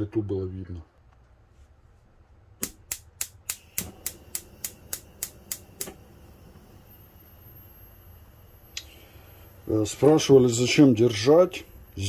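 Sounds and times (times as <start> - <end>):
stove spark igniter clicking: 2.6 - 6.7.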